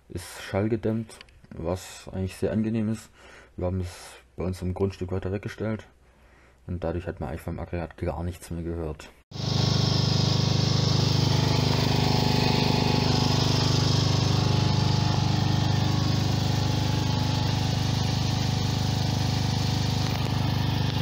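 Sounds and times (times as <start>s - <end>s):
generator engine droning: 9.4s - 21.0s.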